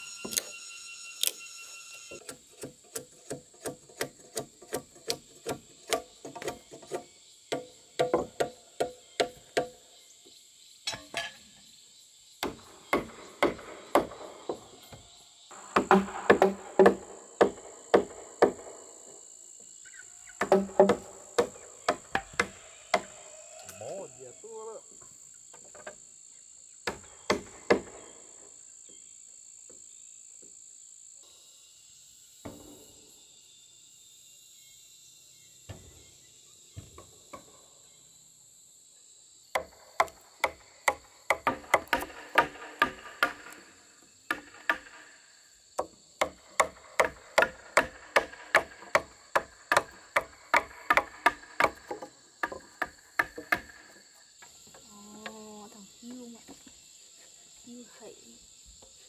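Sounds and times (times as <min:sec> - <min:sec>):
insects shrilling: 0:00.0 - 0:02.2, 0:05.7 - 0:59.0
chisel chopping into log: 0:12.4 - 0:14.2, 0:15.6 - 0:18.7, 0:20.4 - 0:23.1, 0:26.9 - 0:28.0, 0:39.6 - 0:43.6, 0:44.3 - 0:45.0, 0:45.8 - 0:53.9.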